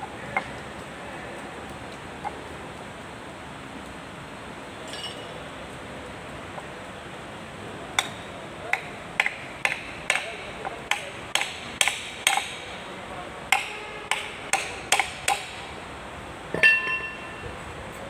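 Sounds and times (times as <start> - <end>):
metallic clank with ring: 4.9 - 5.4, 16.6 - 17.5
hammer tapping: 8.0 - 12.6, 13.5 - 15.6.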